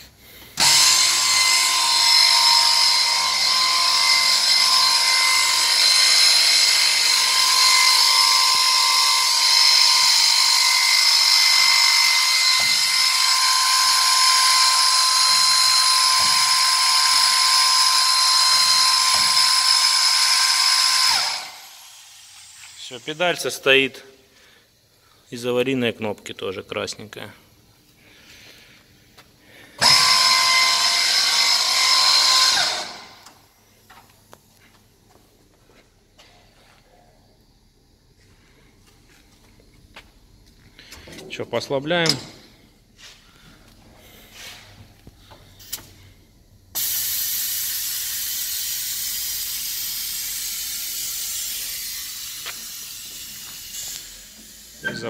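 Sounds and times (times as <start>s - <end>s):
boring machine whining: 0.5s - 23.5s, 29.8s - 34.1s
compressed air hissing: 42.4s - 55.0s.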